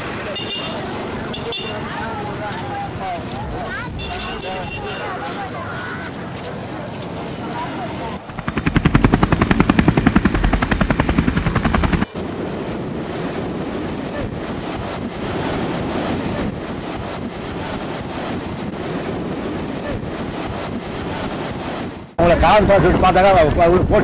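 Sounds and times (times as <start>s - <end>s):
rapid mechanical pulsing: 8.2s - 12.1s.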